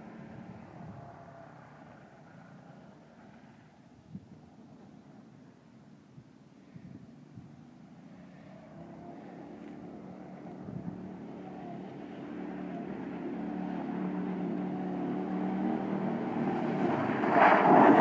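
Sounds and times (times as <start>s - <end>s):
go-kart engine running: 8.4s - 18.0s.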